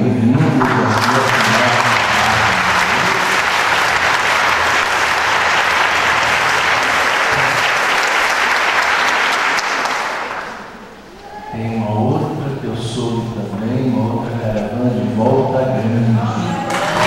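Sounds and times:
crowd applauding: 0:00.0 - 0:11.5, 0:16.3 - 0:17.0.

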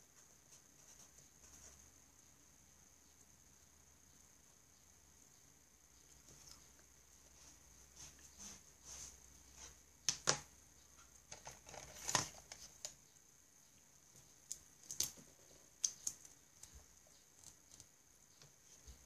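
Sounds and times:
pen strokes on paper: 0:07.2 - 0:09.9.

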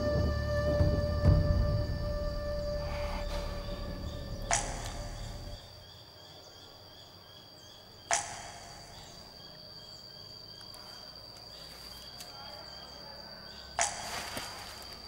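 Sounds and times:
low musical bed: 0:00.0 - 0:05.8.

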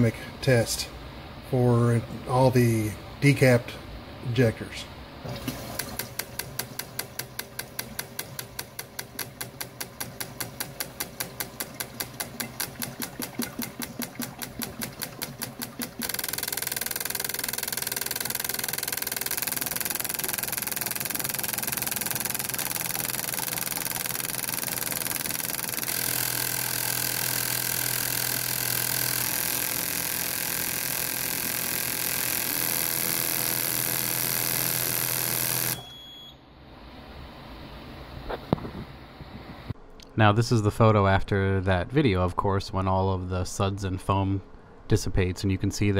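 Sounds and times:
bench pump running: 0:05.2 - 0:36.0
fuel injectors clicking rapidly: 0:05.8 - 0:35.8.

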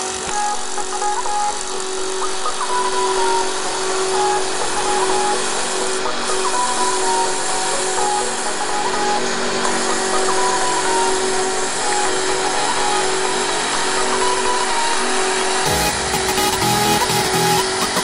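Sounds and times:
constant machine tones: 0:00.0 - 0:18.0.

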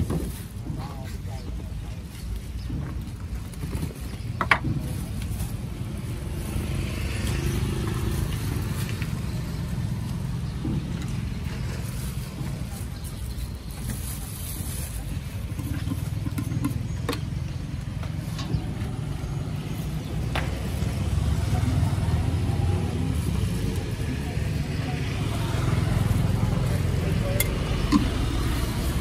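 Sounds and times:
vehicle engine running: 0:04.1 - 0:29.0.

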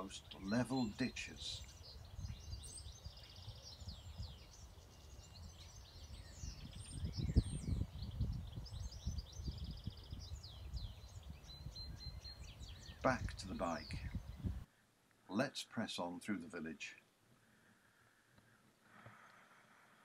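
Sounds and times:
songbirds singing: 0:00.0 - 0:14.7
wind buffeting microphone: 0:00.0 - 0:14.7.

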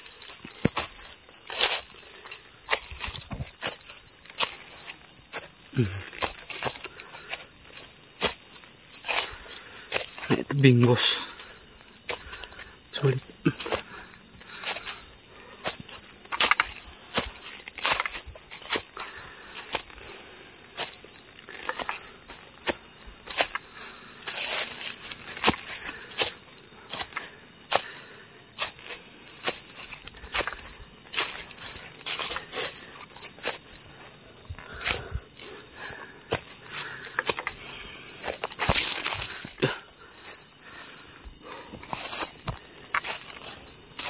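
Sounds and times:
insects droning: 0:00.0 - 0:44.0
footsteps crunching on dry leaves: 0:28.5 - 0:39.6.

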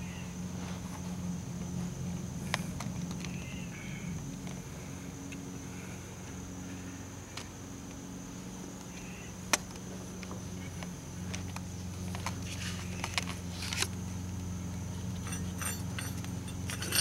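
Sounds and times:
low background hum: 0:00.0 - 0:17.0
handling clicks and knocks: 0:15.0 - 0:17.0
light metallic clinks: 0:15.1 - 0:17.0.

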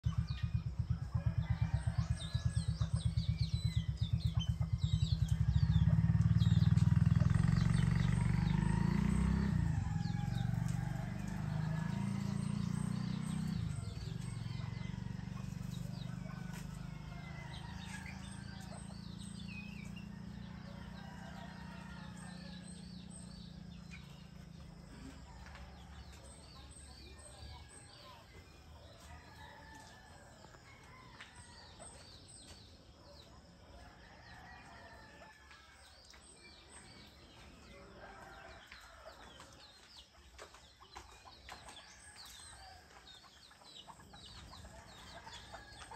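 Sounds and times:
motor engine running: 0:00.0 - 0:28.6
small birds chirping: 0:00.0 - 0:45.9.

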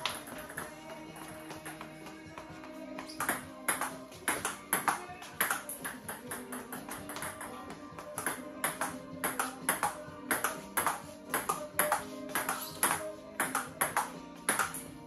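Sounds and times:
background music: 0:00.0 - 0:15.0
table tennis ball clicking: 0:08.2 - 0:14.8.

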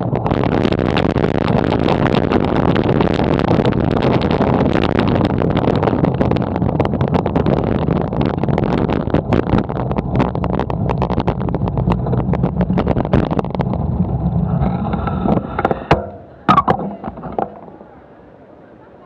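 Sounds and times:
low riding rumble: 0:00.0 - 0:19.0
bike clicks and rattles: 0:05.8 - 0:17.8.

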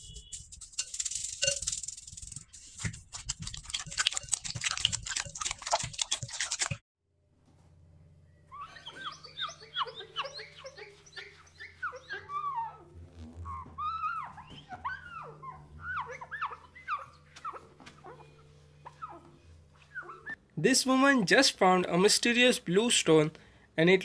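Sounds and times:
low steady hum: 0:00.0 - 0:23.8
squeaky chirps: 0:08.5 - 0:20.4.

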